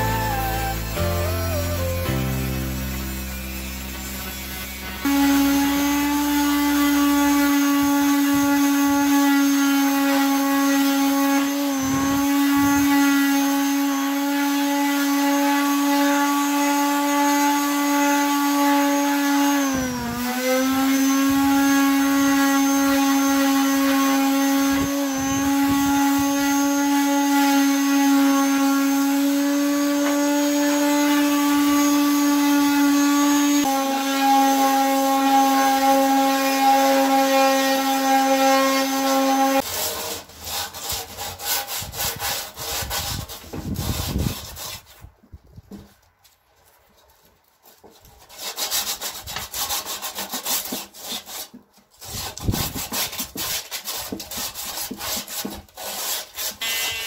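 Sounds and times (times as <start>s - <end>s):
electric sander buzzing: 0.0s - 39.6s, 56.6s - 57.0s.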